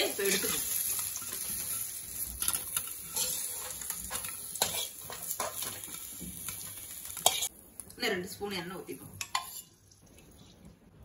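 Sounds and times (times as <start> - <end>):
hot oil sizzling: 0.0 - 10.4
metal ladle scraping metal pan: 0.3 - 5.8, 9.2 - 9.8.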